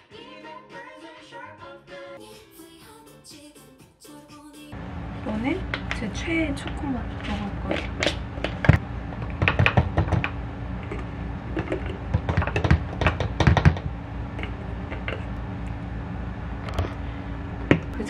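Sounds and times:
scoop tapping canister and tumbler: 6.6 - 15.3.

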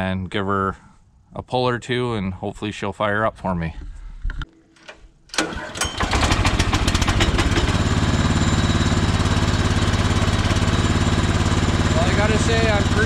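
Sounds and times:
recoil starter pull: 5.3 - 7.8
small engine running steadily: 6.0 - 13.0.

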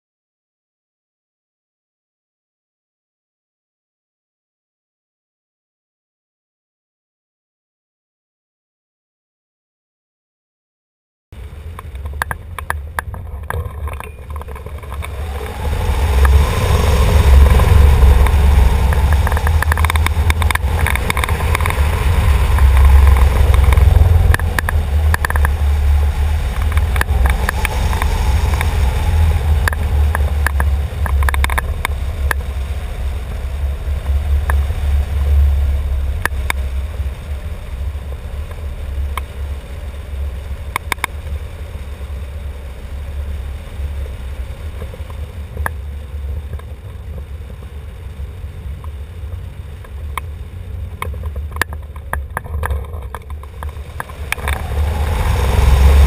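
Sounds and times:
wind buffeting microphone: 11.4 - 56.0.

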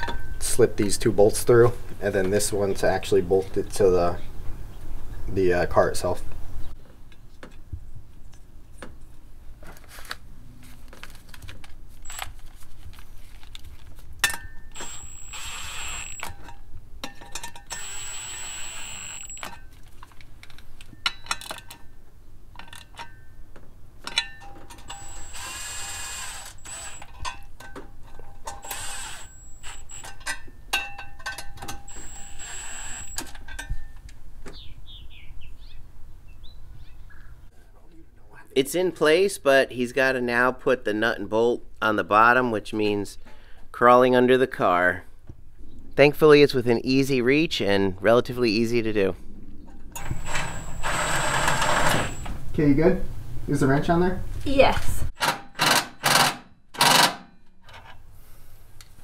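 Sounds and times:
impact wrench whine: 12.0 - 12.3, 14.3 - 16.6, 17.5 - 19.6, 24.5 - 27.2, 28.4 - 30.4, 31.6 - 33.4, 50.0 - 52.4, 55.2 - 57.3.

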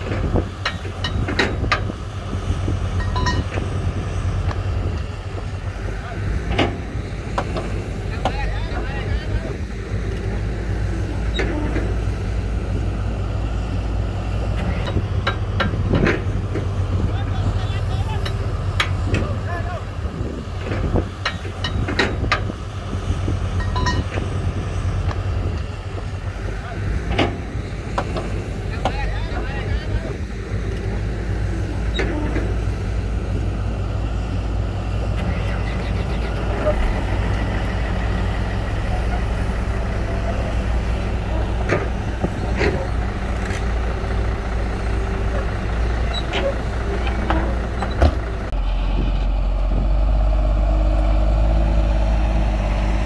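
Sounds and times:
metallic clanks and knocks: 0.0 - 2.0, 3.0 - 3.7, 6.4 - 8.4, 14.8 - 16.8, 20.6 - 22.5, 23.6 - 24.3, 27.1 - 29.0, 46.1 - 48.6
diesel engine drone: 0.0 - 53.0.

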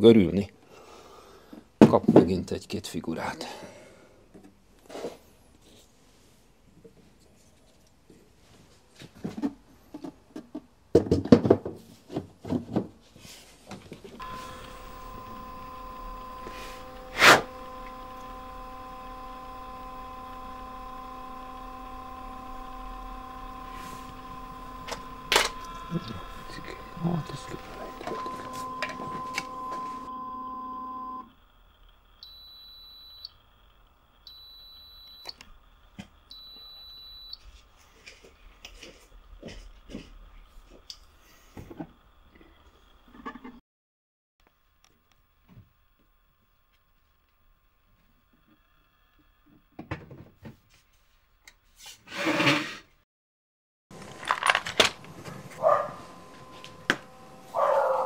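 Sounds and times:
machine running hum: 14.2 - 43.2, 53.9 - 58.0
high steady beep: 23.0 - 31.2, 32.2 - 33.4, 34.3 - 35.4, 36.3 - 37.4.

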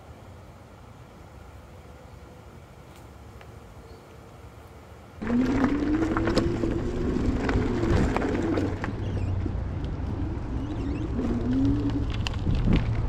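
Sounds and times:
riding rumble: 0.0 - 13.0
electric hub motor whining: 5.2 - 13.0.

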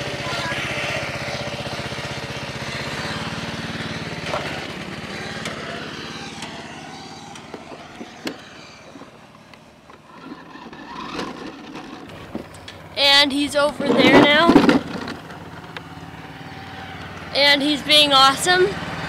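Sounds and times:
riding mower engine running: 0.0 - 19.0
sharp clicks: 7.3 - 12.8.

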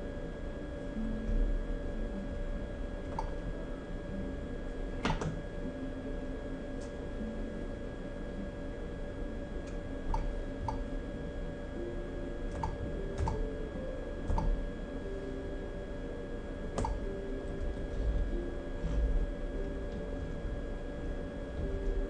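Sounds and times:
steady background hum: 0.0 - 22.0
control panel buttons clicking: 16.8 - 17.0.

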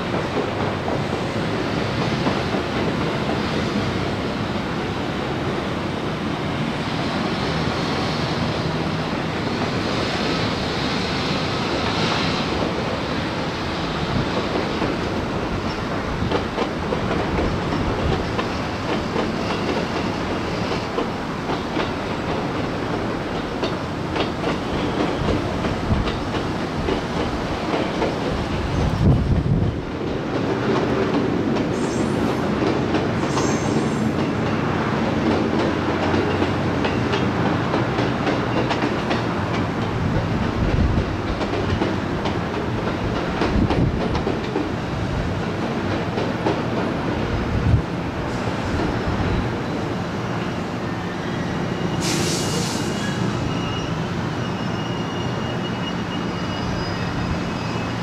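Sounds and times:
train wheels clacking on rails: 0.0 - 58.0
high wheel squeals: 50.5 - 58.0.

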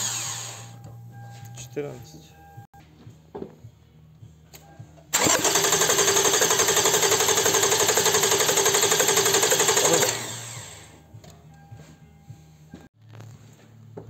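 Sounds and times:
engine cranking on starter motor: 5.1 - 11.0.

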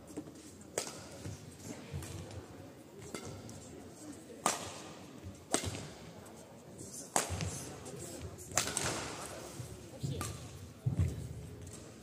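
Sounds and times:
rackets striking shuttlecock: 0.7 - 1.3, 3.0 - 3.5, 4.4 - 6.0, 7.1 - 7.6, 8.5 - 9.3.

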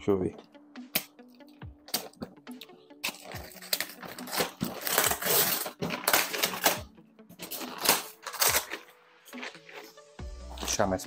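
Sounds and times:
paper ripping and crumpling: 3.0 - 6.8, 7.4 - 10.9
utility knife cutting tape: 3.2 - 6.8, 7.5 - 8.8.

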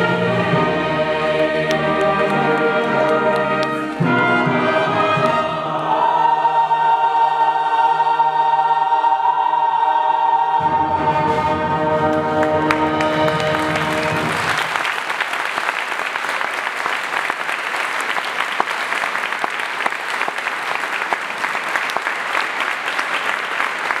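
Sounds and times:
choir holding a chord: 0.0 - 14.6
audience applause: 12.1 - 24.0.

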